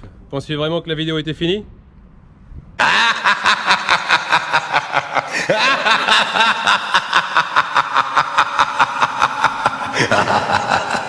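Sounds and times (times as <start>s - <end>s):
rapid giggling laughter: 2.8s - 11.0s.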